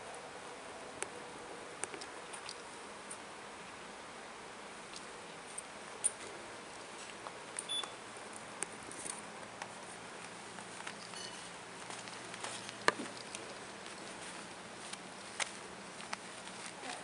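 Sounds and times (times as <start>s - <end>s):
light taps and rustles: 8.6s - 17.0s
small bell tinkling: 11.0s - 11.5s.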